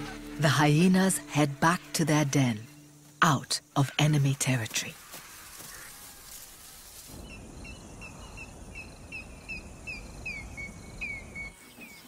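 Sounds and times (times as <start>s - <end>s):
bird chirping: 7.1s - 12.0s.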